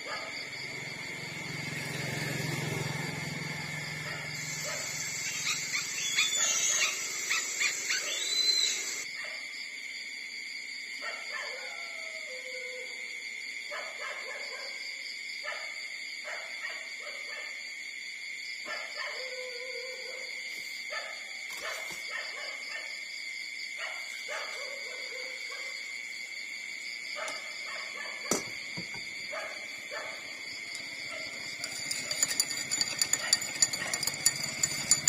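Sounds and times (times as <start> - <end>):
puppies whimpering and squeaking: 4.4 - 9.0
steady high tone: 4.4 - 9.0.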